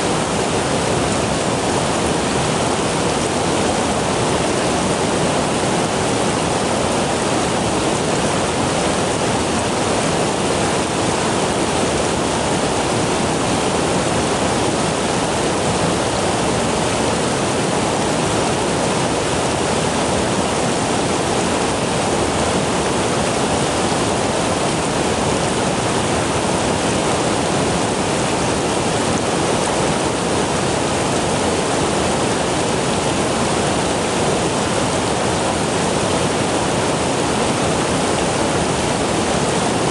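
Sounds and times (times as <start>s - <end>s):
rushing river water: 0.0s - 39.9s.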